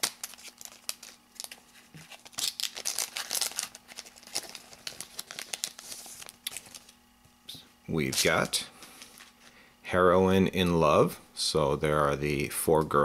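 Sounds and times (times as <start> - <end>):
foil wrapper crinkling and tearing: 0.0 - 7.0.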